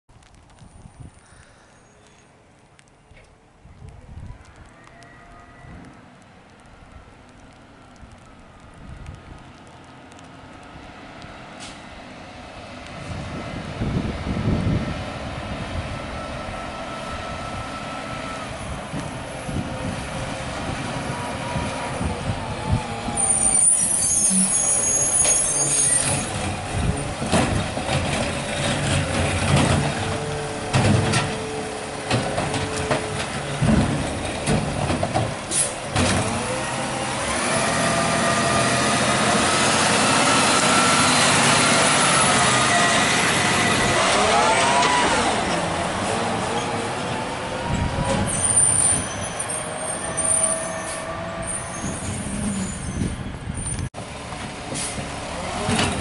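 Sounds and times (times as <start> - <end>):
air brake hiss: 11.6 - 11.8, 35.5 - 35.8, 54.7 - 55.0
garbage truck engine: 11.6 - 56.0
truck knocks and clatter: 26.1 - 36.6, 53.5 - 56.0.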